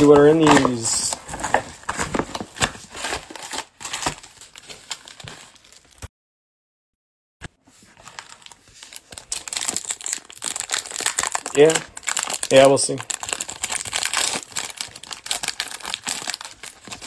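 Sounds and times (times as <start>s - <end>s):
cardboard and foil packs rustling: 0.0s - 6.0s, 7.7s - 17.0s.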